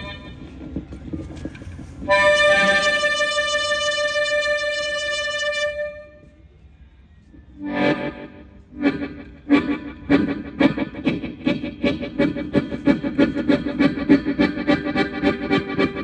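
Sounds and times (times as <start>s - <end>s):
harmonica train whistle chord: 2.0s - 6.2s, 7.6s - 16.0s.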